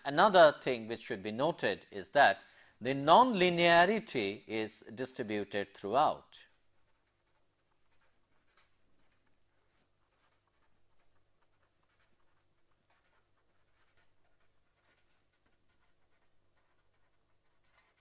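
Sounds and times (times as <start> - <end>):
pen scratching on paper: 6.4 - 18.0.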